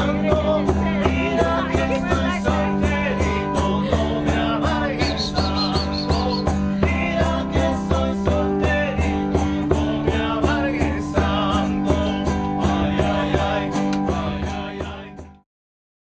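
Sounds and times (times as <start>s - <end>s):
acoustic guitar strumming: 0.0s - 15.4s
people singing: 0.0s - 15.4s
panpipes: 1.2s - 7.0s.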